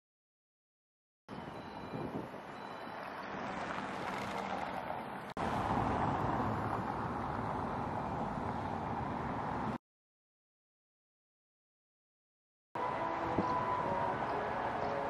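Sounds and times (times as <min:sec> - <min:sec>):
street traffic: 0:01.3 - 0:09.8, 0:12.8 - 0:15.0
car driving on cobblestones: 0:02.2 - 0:08.9.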